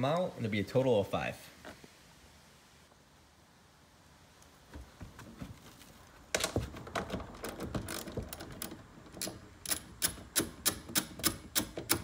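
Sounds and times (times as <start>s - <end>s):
ratchet wrench clicking: 9.2s - 12.0s.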